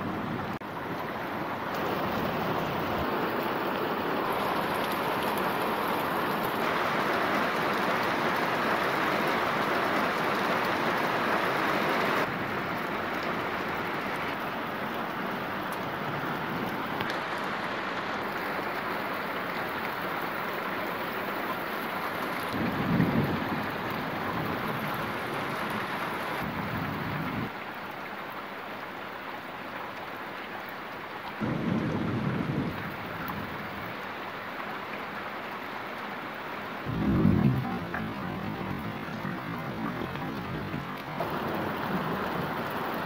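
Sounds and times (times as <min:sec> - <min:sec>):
rain falling: 0:00.0 - 0:43.0
low rumble of thunder: 0:22.5 - 0:27.5, 0:31.4 - 0:34.0, 0:36.9 - 0:42.9.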